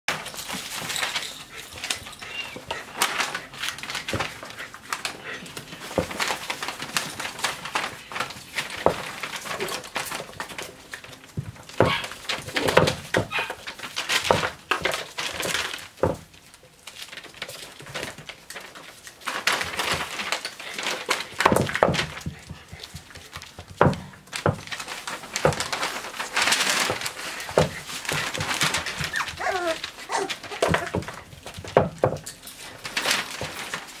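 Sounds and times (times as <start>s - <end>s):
claws scrabbling: 0.1s - 34.0s
paper rustling: 0.1s - 34.0s
puppy squeaks and whimpers: 2.2s - 2.7s, 28.8s - 31.0s.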